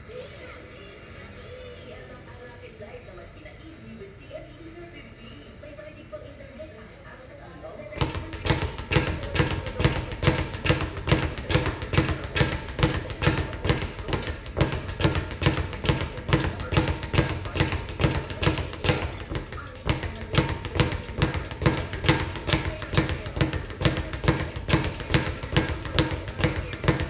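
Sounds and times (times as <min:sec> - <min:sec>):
speed bag rattling: 0:08.0 - 0:27.0.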